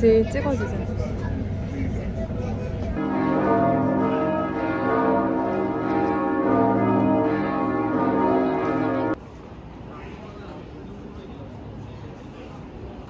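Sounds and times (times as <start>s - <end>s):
church bells ringing: 3.0s - 9.2s.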